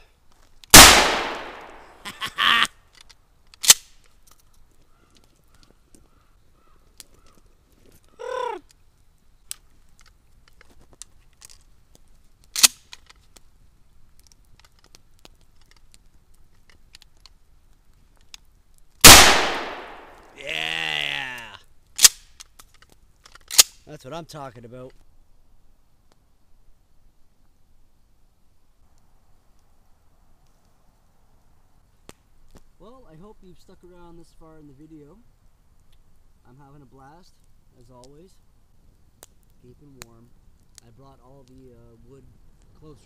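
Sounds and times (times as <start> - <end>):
gun handling clicks: 0.6 - 2.0, 2.9 - 4.6, 9.5 - 11.6, 12.4 - 13.2, 14.2 - 17.4, 19.0 - 20.4, 22.0 - 23.8
gunshot ringing out: 0.7 - 2.0, 19.0 - 20.4
crow-like bird call: 4.9 - 7.4.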